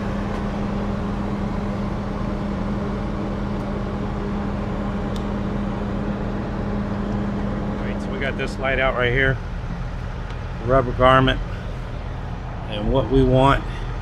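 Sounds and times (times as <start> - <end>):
truck engines idling: 0.0 - 14.0.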